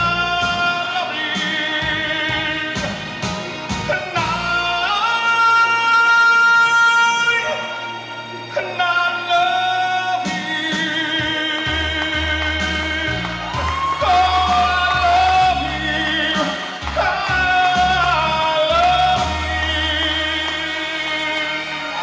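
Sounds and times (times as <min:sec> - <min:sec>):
karaoke backing track: 0:00.0 - 0:22.0
man singing with vibrato: 0:00.0 - 0:22.0.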